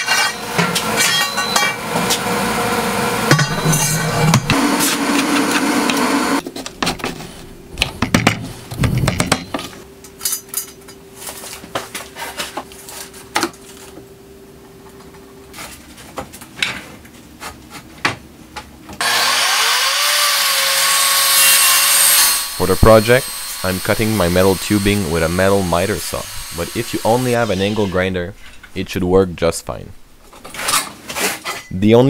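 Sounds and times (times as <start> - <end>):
faint steady hum: 6.4 - 19.0
loud dense noise: 22.4 - 30.2.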